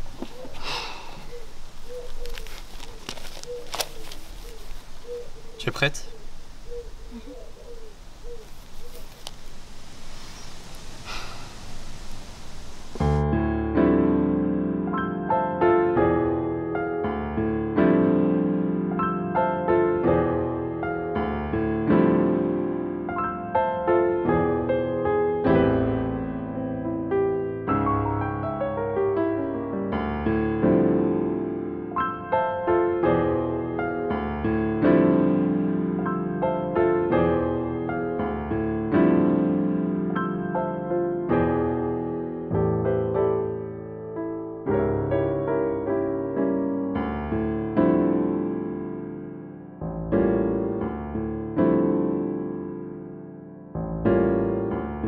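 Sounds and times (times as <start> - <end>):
outdoor background hiss: 0.0 - 13.2
piano music: 0.0 - 55.0
keyboard playing gentle chords: 12.0 - 55.0.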